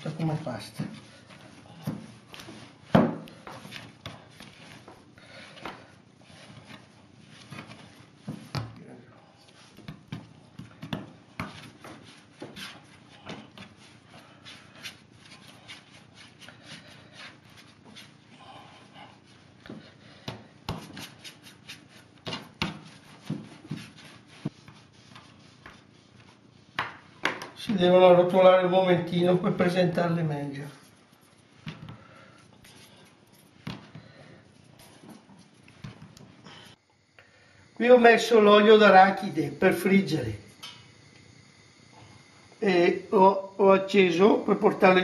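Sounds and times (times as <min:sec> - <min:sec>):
hands kneading dough on wood: 0:00.0 - 0:18.2, 0:19.1 - 0:27.8.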